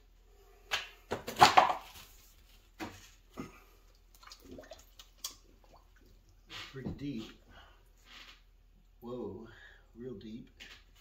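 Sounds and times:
water splashing and sloshing: 0:01.8 - 0:07.4.

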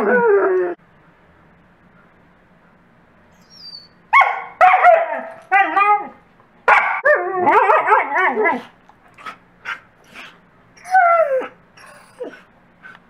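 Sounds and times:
dogs yipping and howling: 0:03.4 - 0:08.7, 0:10.8 - 0:12.4.

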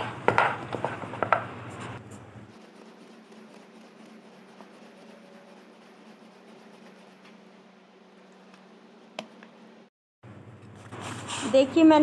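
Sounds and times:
rolling pin rolling dough: 0:00.0 - 0:07.6.

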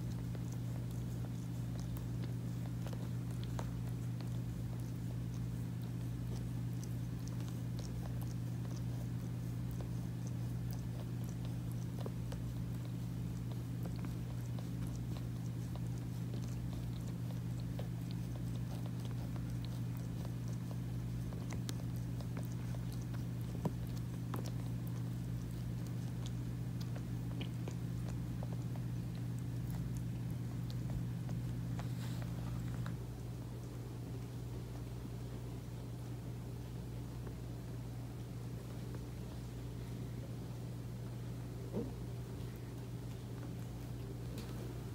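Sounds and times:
cat tongue licking clicks: 0:00.0 - 0:33.0.

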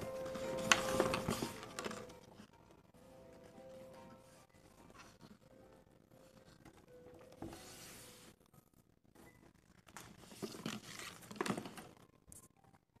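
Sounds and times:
paper brochure rustling: 0:00.0 - 0:02.5, 0:09.8 - 0:12.0.

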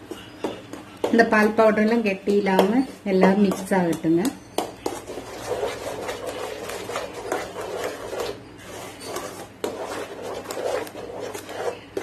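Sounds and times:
spatula knocking pan: 0:00.4 - 0:07.6
wooden spatula scraping pan: 0:04.8 - 0:12.0.

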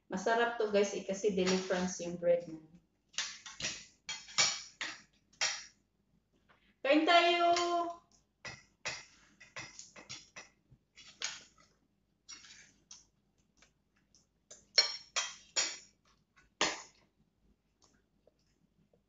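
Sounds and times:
cutlery clinking on ceramic dishes: 0:03.2 - 0:05.7, 0:14.7 - 0:15.9.

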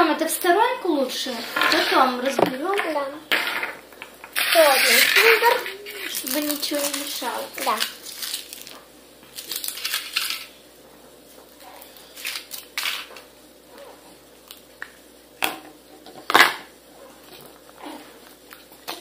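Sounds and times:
foil rustling: 0:04.4 - 0:10.6, 0:11.5 - 0:13.1.

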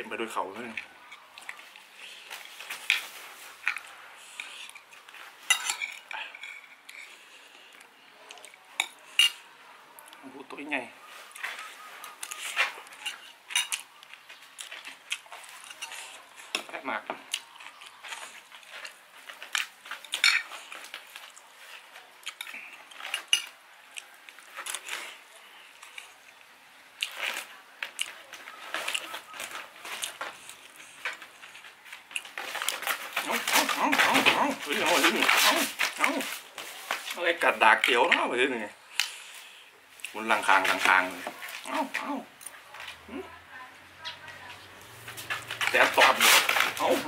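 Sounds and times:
cutlery scraping and clinking on plate: 0:02.4 - 0:07.1, 0:08.8 - 0:09.4, 0:11.4 - 0:13.9, 0:14.7 - 0:16.7, 0:19.6 - 0:20.8.

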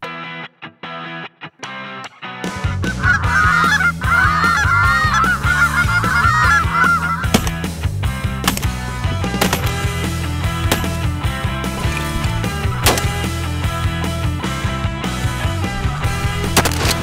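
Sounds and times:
rock music: 0:00.0 - 0:17.0
goose call honks and clucks: 0:02.8 - 0:07.5
sharp crack: 0:07.2 - 0:13.7, 0:16.1 - 0:17.0.

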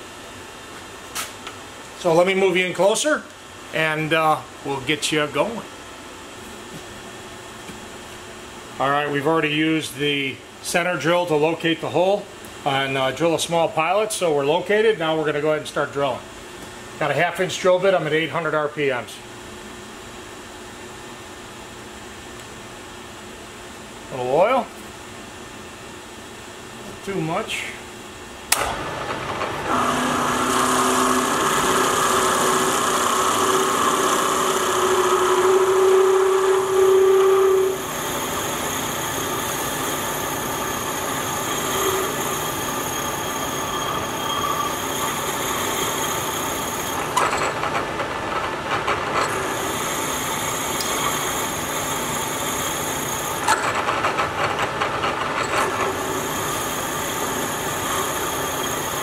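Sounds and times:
steady machine whine: 0:28.4 - 0:59.0
milling machine drilling steel: 0:29.6 - 0:47.8, 0:49.2 - 0:54.8, 0:55.4 - 0:59.0.

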